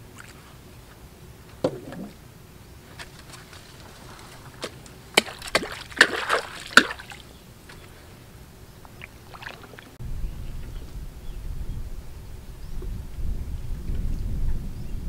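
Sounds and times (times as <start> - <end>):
low steady rumble: 0.0 - 15.0
rustling leaves: 0.0 - 15.0
water sloshing: 1.5 - 10.0
wooden canoe knocking on branches: 1.6 - 2.2, 3.0 - 7.9.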